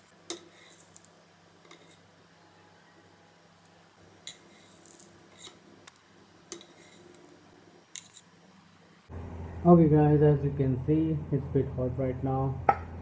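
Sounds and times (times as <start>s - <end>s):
patty sizzling in oil: 0.0s - 2.1s, 4.0s - 8.5s
low steady hum: 0.0s - 13.0s.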